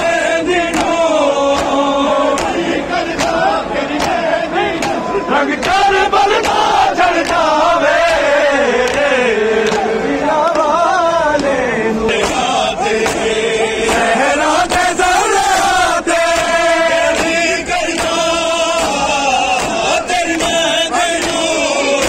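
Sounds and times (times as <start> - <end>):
crowd voices: 0.0 - 22.0
man chanting mournful melody: 8.6 - 22.0.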